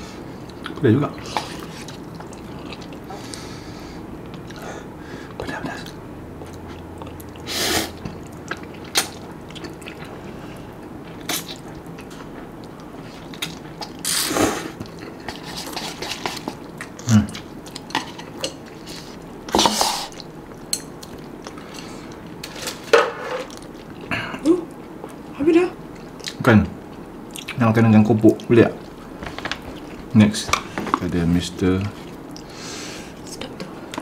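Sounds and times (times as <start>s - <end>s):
wet chewing: 0.4s - 3.4s, 5.8s - 14.1s.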